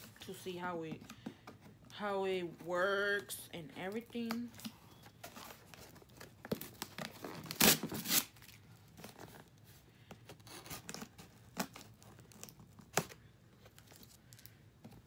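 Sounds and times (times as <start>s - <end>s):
packing tape ripping: 5.4s - 9.3s.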